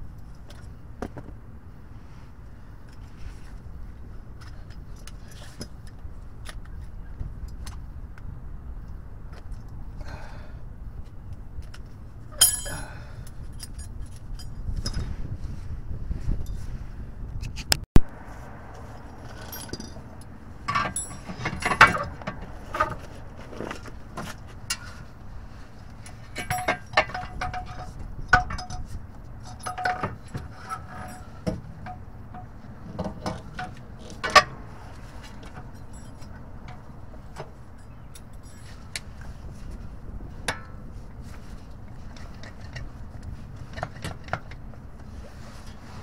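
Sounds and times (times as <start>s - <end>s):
metal clinks and scrapes: 12.3s - 15.6s, 16.2s - 16.8s, 18.9s - 44.5s.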